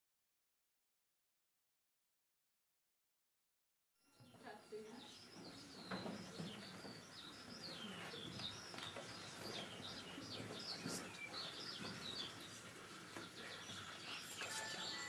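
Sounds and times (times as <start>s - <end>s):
small birds chirping: 4.0s - 15.0s.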